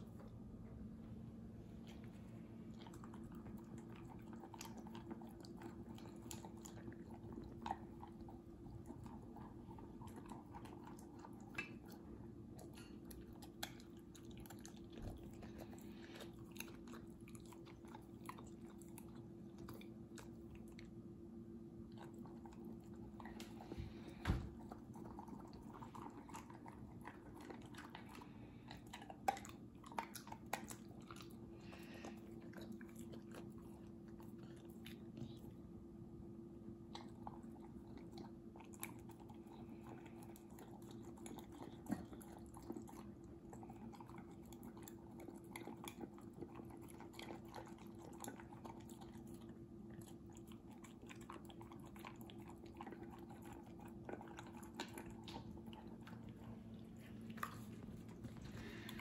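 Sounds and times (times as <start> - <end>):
dog crunching dry kibble: 37.0 - 59.0.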